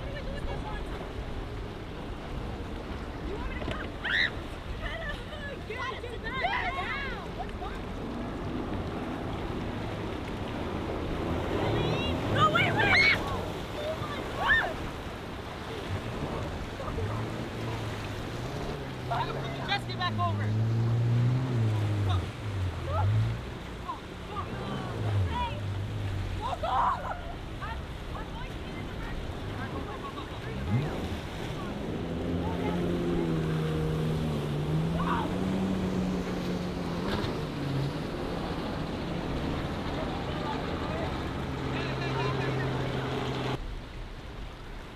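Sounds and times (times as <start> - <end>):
boat engine idling: 0.0 - 43.6
choppy water: 0.0 - 44.9
waves washing: 0.0 - 44.9
wind: 0.0 - 44.9.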